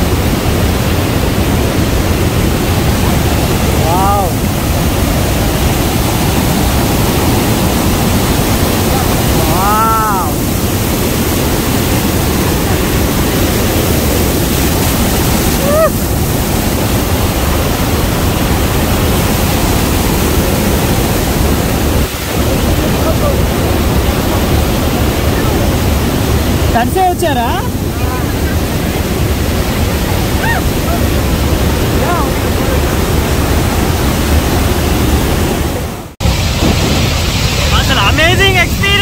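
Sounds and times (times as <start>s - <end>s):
waterfall roaring onto rocks: 0.0s - 39.0s
rising and falling cry: 15.6s - 16.1s, 30.3s - 31.2s.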